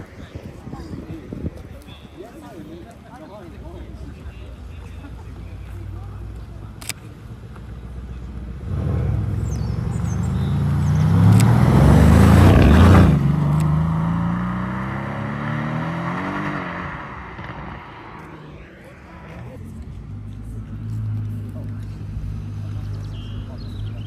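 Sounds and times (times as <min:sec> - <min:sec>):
car accelerating past: 0:08.6 - 0:19.6.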